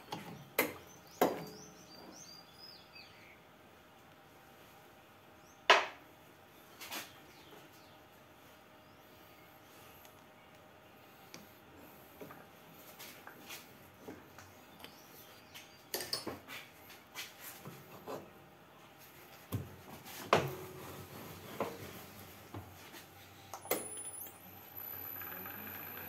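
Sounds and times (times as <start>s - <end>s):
lathe motor running: 24.3s - 26.0s.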